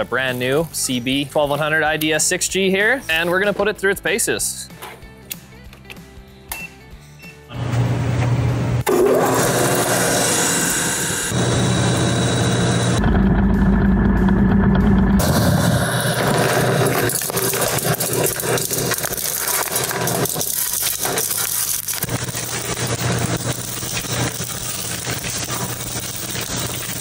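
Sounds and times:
alternator hum and whine: 0:07.5 - 0:09.0, 0:09.9 - 0:18.8
gravel pouring crackle: 0:15.2 - 0:27.0.

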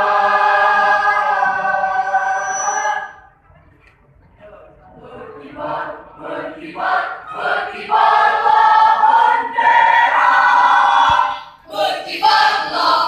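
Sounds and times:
mixed choir singing: 0:00.0 - 0:03.3, 0:05.0 - 0:13.0.

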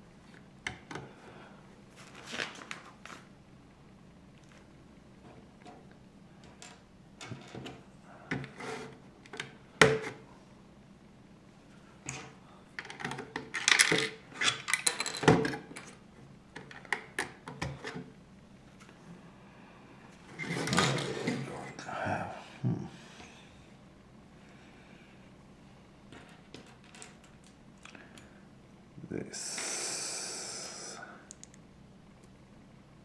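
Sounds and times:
plastic bricks clicking and clattering: 0:12.8 - 0:15.9.

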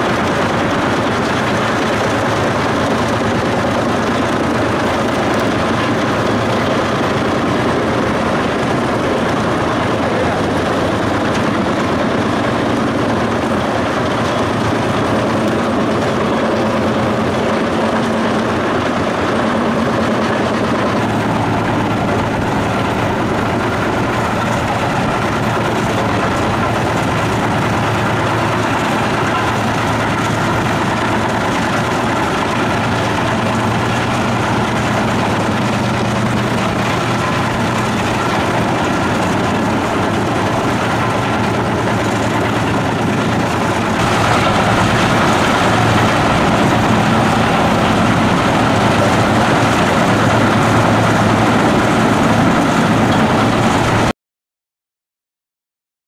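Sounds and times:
wood chipper diesel engine droning: 0:00.0 - 0:54.1
wood grinding into chips: 0:20.3 - 0:51.2.

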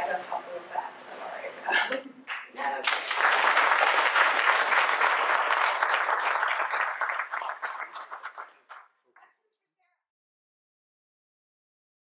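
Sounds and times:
audience applauding: 0:02.3 - 0:08.9.

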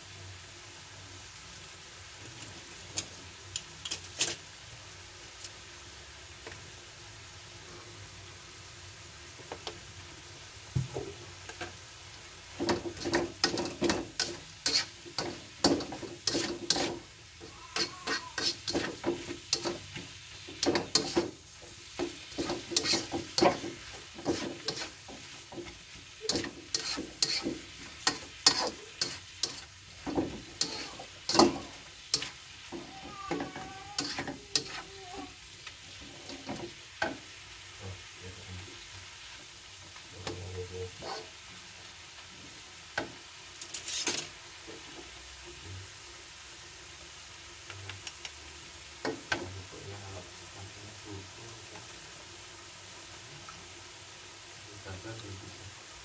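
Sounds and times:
soft steady sizzle: 0:00.0 - 0:56.0
plastic spatula scraping a wok: 0:12.8 - 0:17.1, 0:17.7 - 0:20.0, 0:22.0 - 0:34.9.

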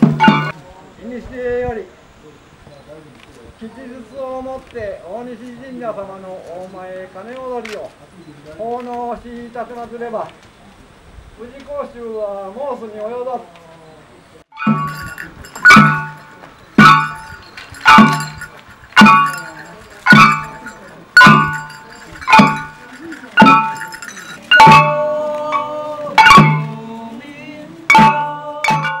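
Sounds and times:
drum beat: 0:00.0 - 0:00.6, 0:14.6 - 0:27.0, 0:27.9 - 0:29.0
hand gongs struck: 0:00.0 - 0:00.6, 0:14.6 - 0:26.8.

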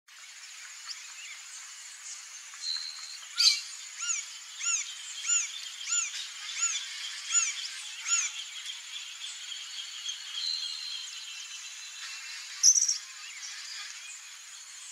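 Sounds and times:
woodpecker ringing calls: 0:03.4 - 0:08.3.

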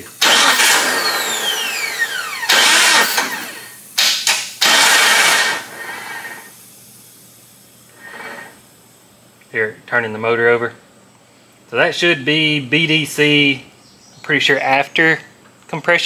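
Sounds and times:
starter motor cranking: 0:00.0 - 0:06.5
starter whine spinning down: 0:00.0 - 0:06.6.

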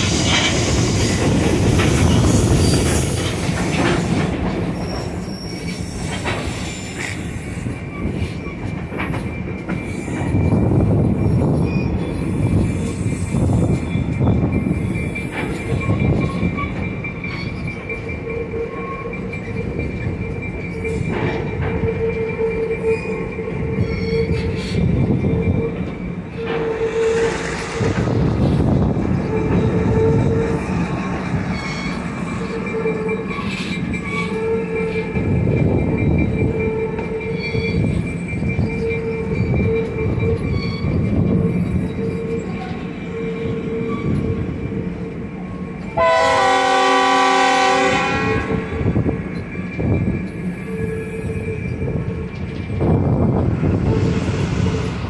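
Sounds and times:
wheels squealing: 0:00.0 - 0:44.8
lower wheel squeal: 0:00.0 - 0:45.7, 0:48.7 - 0:55.0
train rumbling and clattering on rails: 0:00.0 - 0:55.0.

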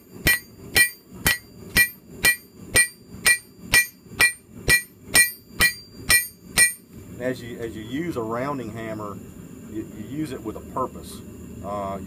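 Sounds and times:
hammer striking steel on anvil: 0:00.0 - 0:06.9.

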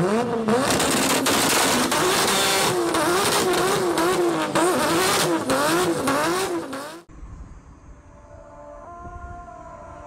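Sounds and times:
car engine revving: 0:00.0 - 0:07.1.

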